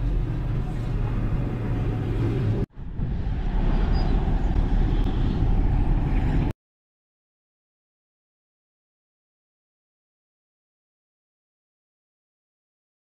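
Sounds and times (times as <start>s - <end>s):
vehicle engine and road rumble: 0.0s - 6.5s.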